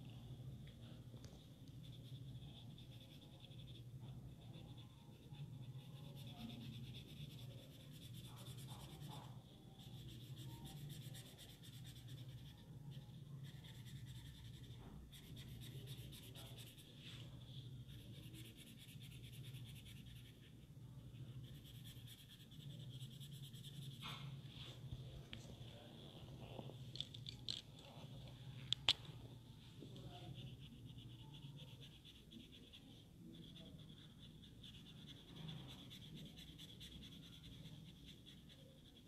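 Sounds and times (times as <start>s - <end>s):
crayon scratching on paper: 1.7s - 24.4s, 30.0s - 39.0s.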